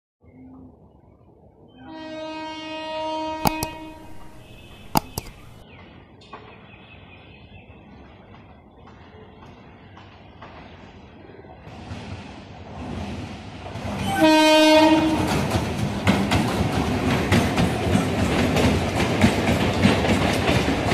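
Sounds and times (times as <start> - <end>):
train horn blast: 1.8 - 5.5, 14.0 - 15.5
train rumble: 11.6 - 20.9.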